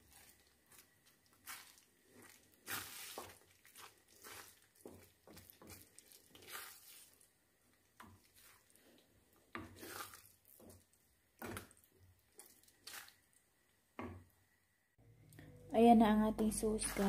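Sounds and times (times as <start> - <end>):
wooden spoon stirring thick sauce: 0.0 - 13.3.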